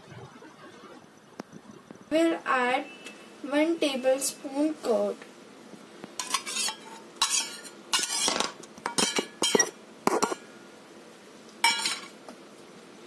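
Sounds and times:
spoon clinking and scraping: 6.2 - 10.4.

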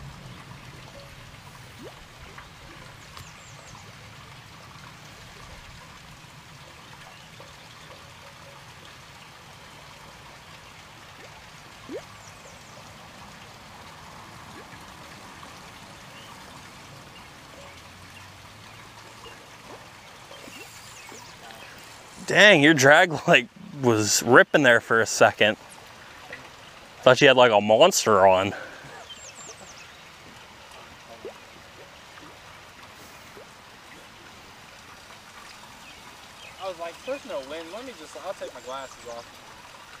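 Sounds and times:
soft water-like hiss: 17.6 - 22.3, 28.5 - 40.0.

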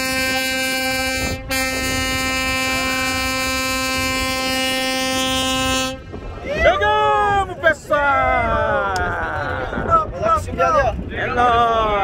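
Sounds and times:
boat horn blast: 0.0 - 6.3.

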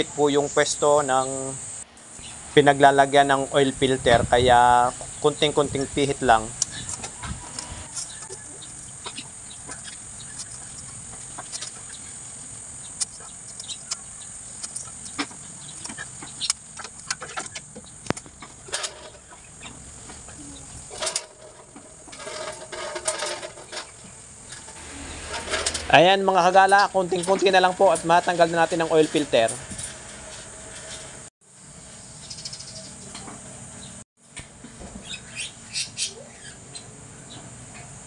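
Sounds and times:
bird calling: 4.7 - 22.1, 23.6 - 25.9, 35.0 - 37.4
oil filter wrench clicks and scrapes: 14.6 - 15.2.

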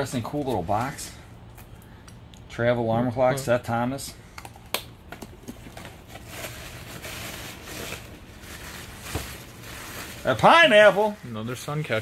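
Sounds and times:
cloth wrapping rustling: 6.0 - 12.0.

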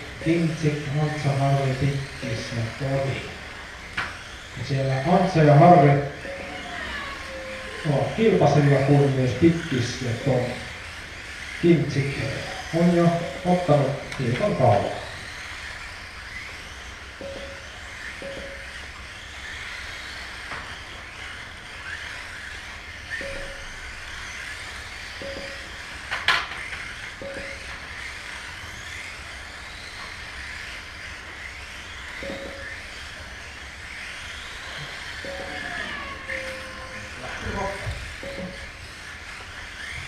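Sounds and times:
electric toy cars whining: 0.0 - 40.0
short single beeps: 17.2 - 17.6, 23.2 - 23.7, 25.2 - 25.6, 27.2 - 27.6.

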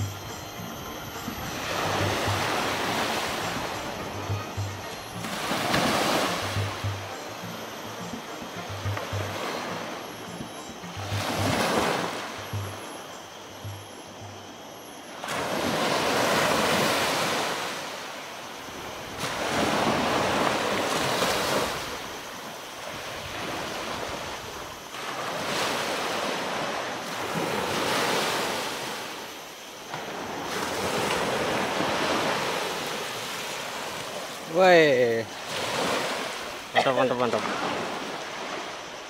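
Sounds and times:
small waves washing up beach: 0.0 - 39.0.

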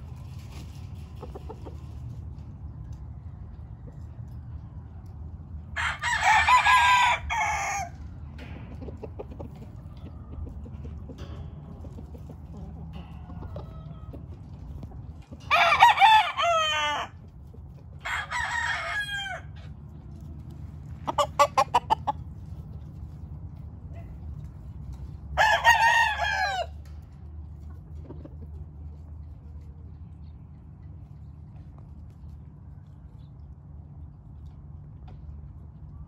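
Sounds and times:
roosters crowing: 5.6 - 8.5, 12.6 - 17.3, 17.9 - 20.2, 20.9 - 22.3, 25.1 - 27.0.

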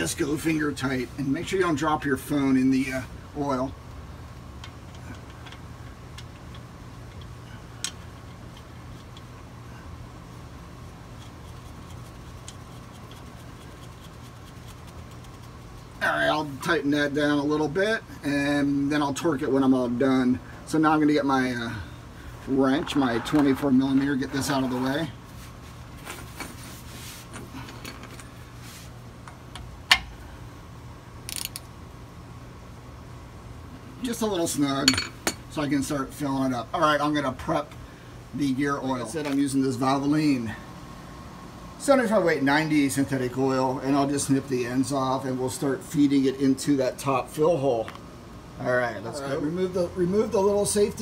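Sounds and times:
steady low hum: 0.0 - 51.0
small metallic clicks: 31.3 - 31.7.

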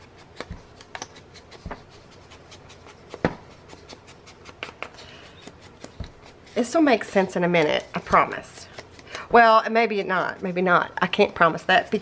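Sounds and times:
foam tool scuffing paper: 0.0 - 9.0.

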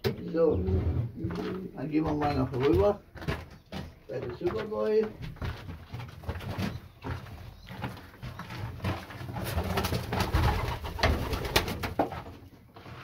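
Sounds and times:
pigeons cooing: 0.2 - 2.3.

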